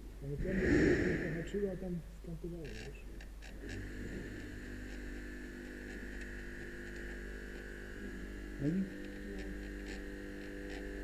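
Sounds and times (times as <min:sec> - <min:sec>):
electrical hum: 0:00.0 - 0:11.0
faint high whine: 0:00.1 - 0:02.4.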